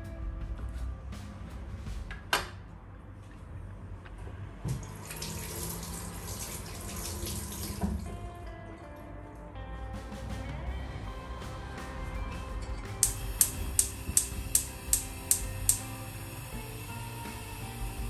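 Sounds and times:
tap running into sink: 0:04.7 - 0:08.1
sharp click: 0:13.0 - 0:15.9.

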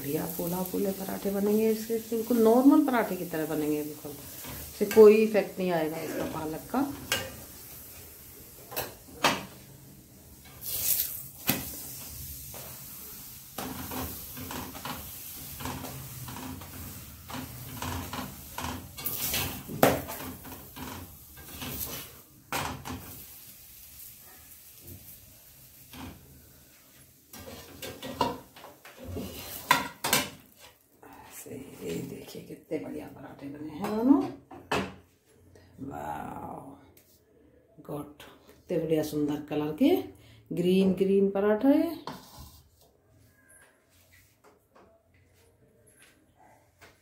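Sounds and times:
spoon scraping metal griddle: 0:10.4 - 0:22.2, 0:27.3 - 0:30.8, 0:42.0 - 0:42.7.

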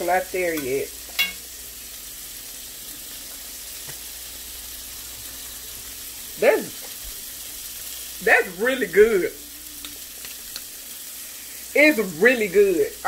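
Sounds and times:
sauce sizzling and bubbling: 0:00.0 - 0:13.0
spoon clicking on skillet: 0:00.6 - 0:01.5, 0:09.8 - 0:10.7.

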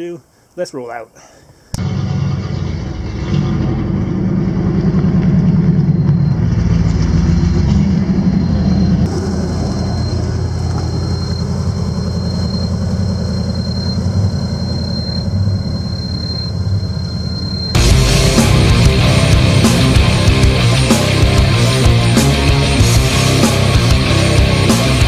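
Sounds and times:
car engine running: 0:01.8 - 0:25.0
thin high tone: 0:05.3 - 0:21.9.

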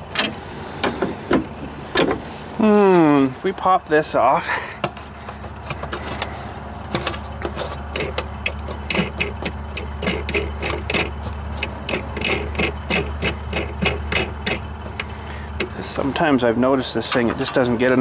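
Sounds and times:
steady low hum: 0:00.0 - 0:18.0
metallic clicks and scrapes: 0:04.8 - 0:15.8.

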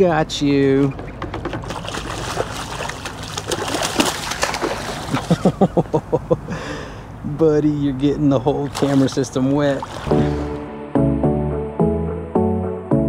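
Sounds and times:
rapid knocks: 0:00.9 - 0:02.2
fish splashing in water: 0:01.5 - 0:05.5, 0:08.7 - 0:10.5.

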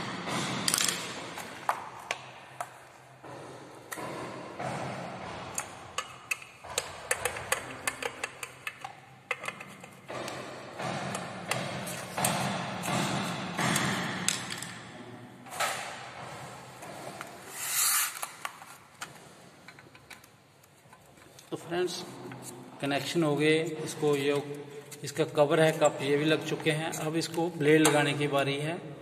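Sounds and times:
metallic clicks and taps: 0:05.5 - 0:13.0
screwdriver scraping: 0:17.5 - 0:18.6.

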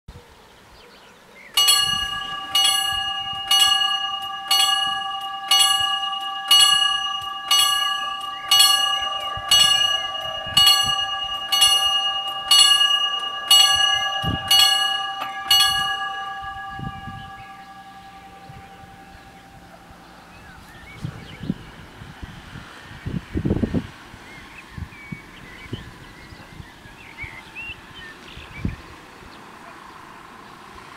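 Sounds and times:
level-crossing warning bell: 0:01.6 - 0:21.9.

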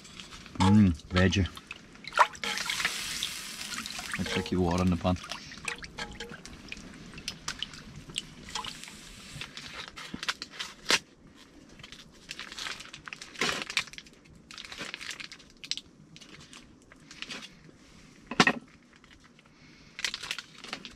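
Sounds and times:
plastic packet crinkling: 0:11.7 - 0:17.4, 0:20.0 - 0:20.9.

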